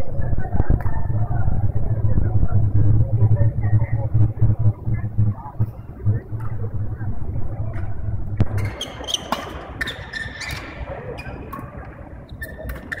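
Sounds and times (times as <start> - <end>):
low hum: 0.0 - 9.9
shoe squeaks on court floor: 8.6 - 11.4, 12.3 - 13.0.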